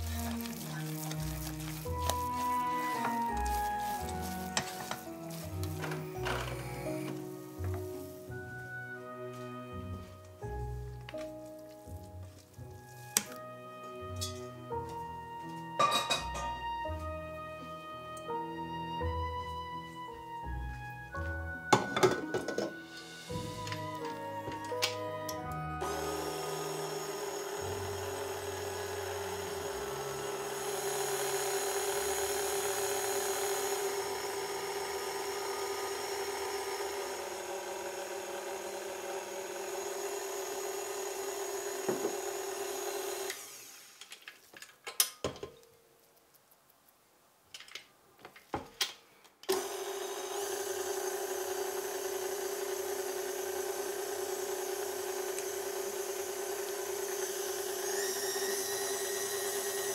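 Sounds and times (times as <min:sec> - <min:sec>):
stand mixer motor humming: 0:25.8 - 0:44.0, 0:49.5 - 0:59.9.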